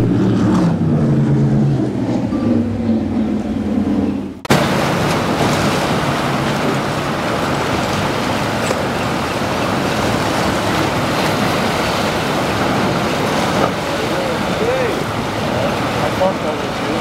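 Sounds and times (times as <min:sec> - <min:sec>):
boat motor running: 0:00.0 - 0:17.0
surf: 0:00.0 - 0:17.0
wind: 0:00.0 - 0:17.0.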